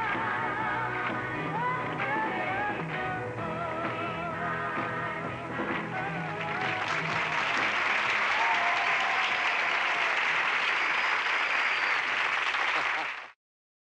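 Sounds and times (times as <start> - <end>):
person singing: 0.0 - 7.2
studio audience applause: 5.9 - 13.4.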